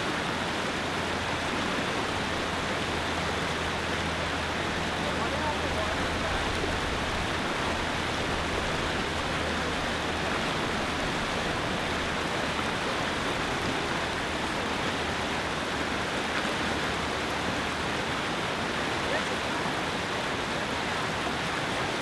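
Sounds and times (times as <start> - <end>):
river rapids rushing over rocks: 0.0 - 22.0.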